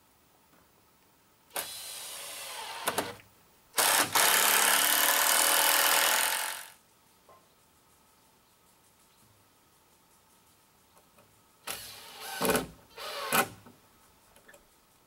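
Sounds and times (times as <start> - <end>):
power tool running: 3.8 - 6.8.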